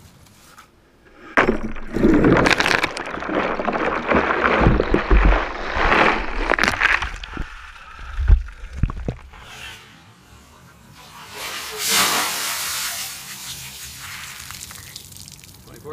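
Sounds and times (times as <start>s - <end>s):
ice cracking: 1.2s - 9.3s
ice and water splashing in bucket: 1.3s - 9.0s, 11.5s - 15.7s.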